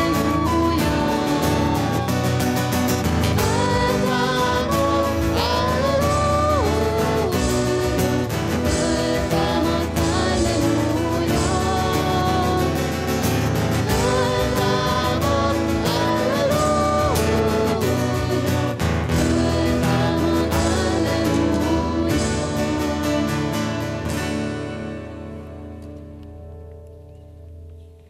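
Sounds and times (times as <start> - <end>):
flute: 0.0 - 8.0
voices singing: 0.0 - 24.2
keyboard: 0.0 - 28.0
strummed acoustic guitar: 0.0 - 28.0.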